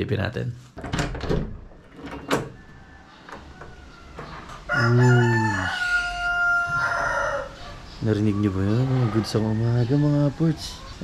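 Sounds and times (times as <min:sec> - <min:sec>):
rooster crowing: 0:02.5 - 0:10.7.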